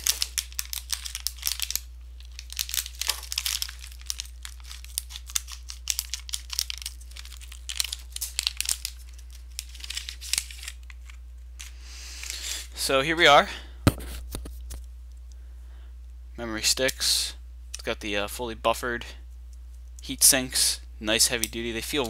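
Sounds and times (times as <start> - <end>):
scissors cutting foil bags: 0.0 - 11.2
steady low hum: 0.0 - 22.0.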